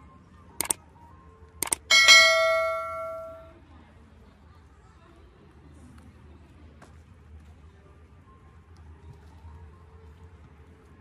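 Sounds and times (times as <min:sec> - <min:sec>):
sharp clicks: 0:00.6 - 0:00.8, 0:01.6 - 0:01.9
bell ringing: 0:01.6 - 0:03.5.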